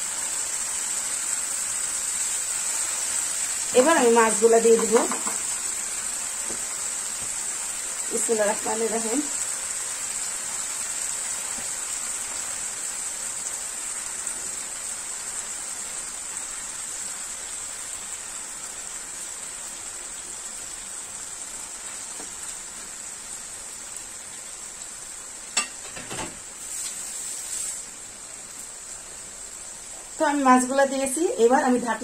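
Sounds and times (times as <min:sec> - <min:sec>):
paste sizzling in a frying pan: 0:00.0 - 0:32.0
knock: 0:05.0 - 0:05.4.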